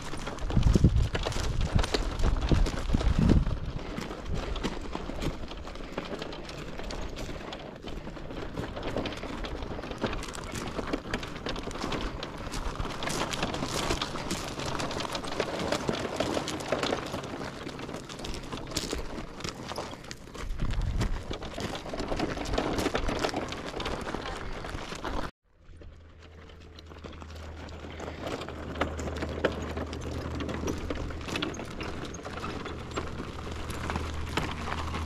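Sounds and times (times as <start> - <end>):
footsteps on gravel: 0.0 - 25.4, 26.9 - 35.0
wagon wheels rolling over gravel: 0.0 - 35.0.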